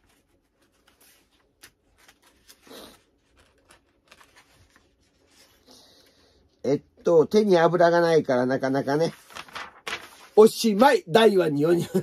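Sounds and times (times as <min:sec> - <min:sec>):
paper rustling and crinkling: 0:00.0 - 0:05.7, 0:09.0 - 0:10.8.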